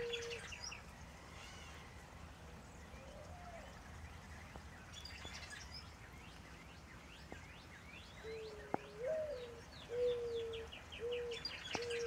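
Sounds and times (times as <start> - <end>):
low cooing bird call: 0.0 - 2.2, 2.8 - 3.9, 8.1 - 12.0
birds chirping: 0.0 - 12.0.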